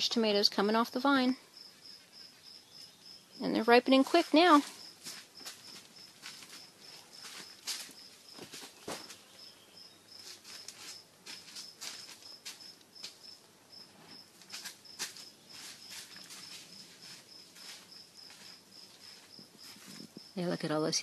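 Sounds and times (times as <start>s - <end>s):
insect chirping: 0.8s - 20.5s
rustling of vines: 4.0s - 9.5s, 10.1s - 20.4s.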